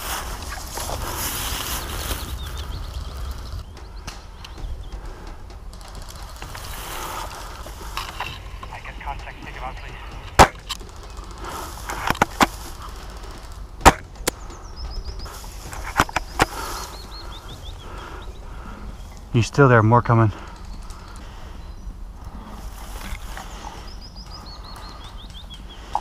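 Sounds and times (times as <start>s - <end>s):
airsoft guns firing: 10.3s - 14.5s.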